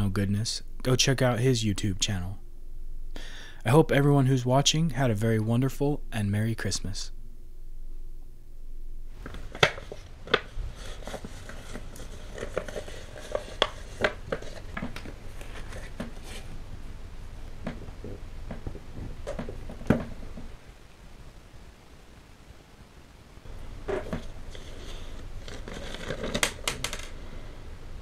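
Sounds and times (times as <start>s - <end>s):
paper rustling and crinkling: 9.2s - 16.6s, 23.5s - 27.3s.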